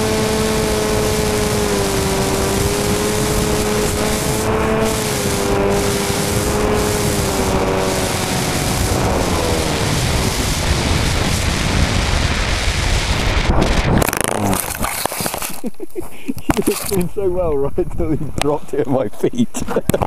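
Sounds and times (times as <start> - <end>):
motor and propeller whine: 0.0 - 15.5
rushing wind: 0.0 - 15.6
knocks and scrapes on ground: 13.6 - 15.8, 16.4 - 17.1.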